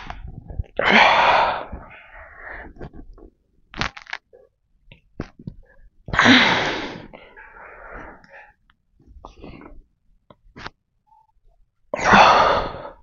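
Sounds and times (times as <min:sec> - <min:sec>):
man breathing hard: 0:00.8 - 0:02.9
man exhaling forcefully: 0:06.2 - 0:07.2.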